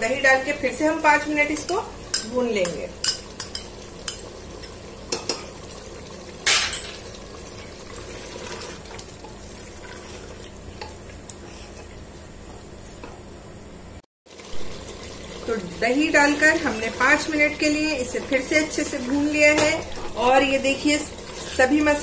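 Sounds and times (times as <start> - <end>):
frying sizzle: 0.0 - 11.7, 14.3 - 22.0
wooden spatula scraping metal pot: 20.8 - 22.0.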